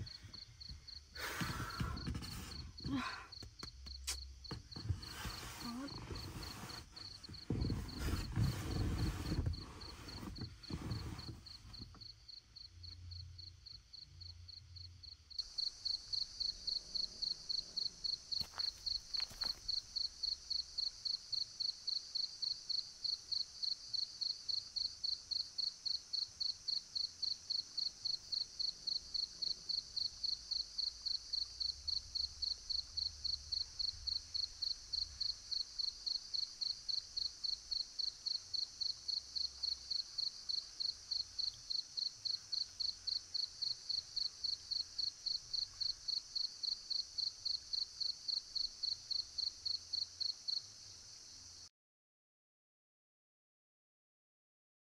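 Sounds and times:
crickets chirping: 0.0s - 51.6s
low rustles and bumps: 4.5s - 12.1s.

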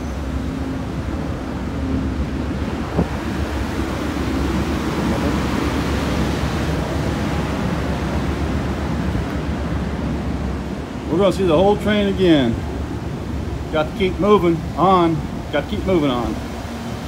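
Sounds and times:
wind on microphone: 0.0s - 10.9s
train rumbling: 0.0s - 17.0s.

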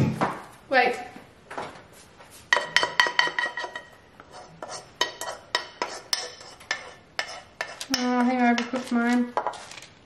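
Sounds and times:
metal spoon tapping in saucepan: 2.5s - 4.0s, 4.6s - 8.9s.

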